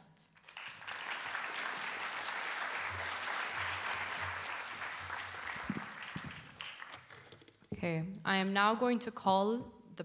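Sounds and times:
audience applauding: 0:00.4 - 0:07.5.

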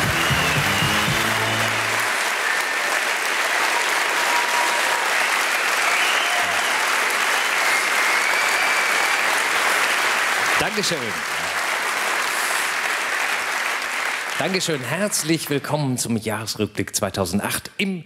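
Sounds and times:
intro music: 0:00.0 - 0:02.1
audience applauding: 0:00.0 - 0:15.9.

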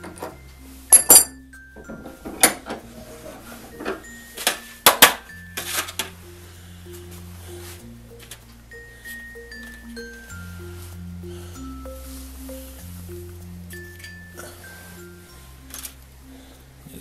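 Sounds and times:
metal tools clinking on wood: 0:00.0 - 0:06.2, 0:15.7 - 0:16.0
soft background music: 0:00.0 - 0:17.0.

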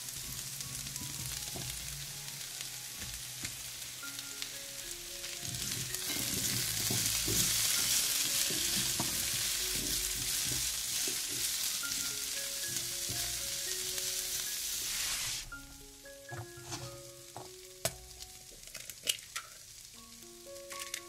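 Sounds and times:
vegetables sizzling in a pan: 0:00.0 - 0:21.0
spatulas scraping a pan: 0:05.5 - 0:12.0, 0:16.3 - 0:17.1.

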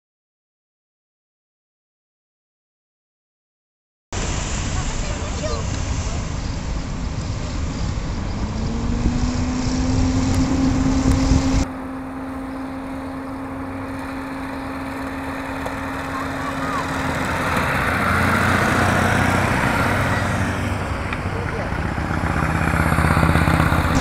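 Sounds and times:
road noise: 0:04.1 - 0:24.0
motorcycles passing: 0:04.2 - 0:24.0.

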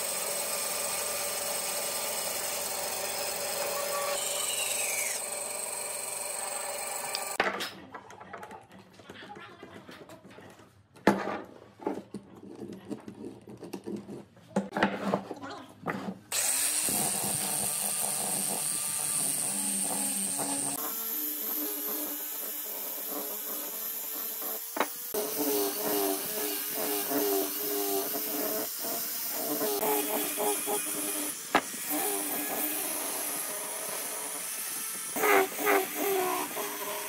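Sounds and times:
angle grinder sanding wood: 0:00.0 - 0:07.4, 0:16.3 - 0:37.0.

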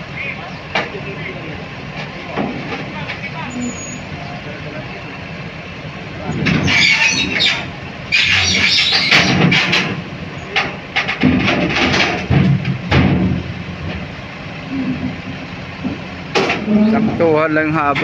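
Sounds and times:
crawler crane engine running: 0:00.0 - 0:18.0
track plates clanking and thudding: 0:00.1 - 0:18.0
steel tracks grinding squeal: 0:03.2 - 0:05.2, 0:06.3 - 0:09.7.

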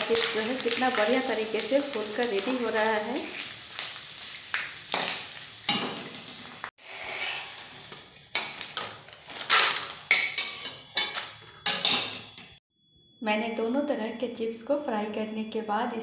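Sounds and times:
oil sizzling: 0:00.0 - 0:12.6
metal spoon scraping a pan: 0:04.9 - 0:12.6.

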